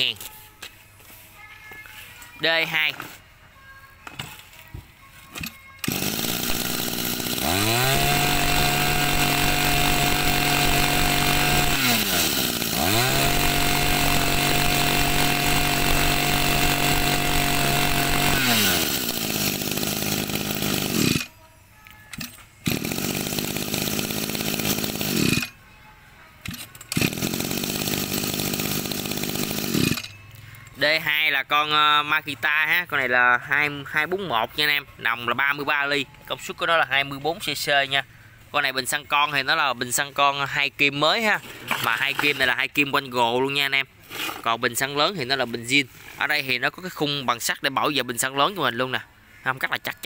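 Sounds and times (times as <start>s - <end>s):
two-stroke engine revving: 5.8s - 21.3s, 22.6s - 25.5s, 26.9s - 30.1s.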